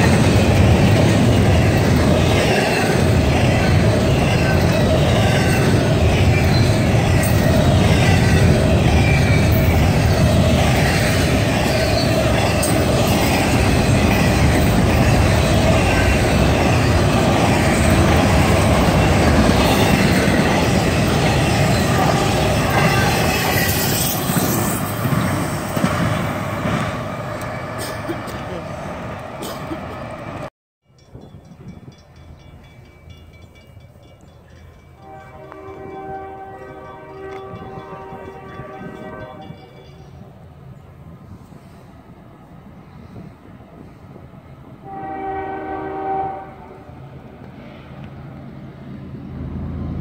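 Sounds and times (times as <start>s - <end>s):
clickety-clack of rail joints: 0.0s - 40.2s
train wheels rumbling on rails: 0.0s - 50.0s
wheel squeal: 2.5s - 13.4s.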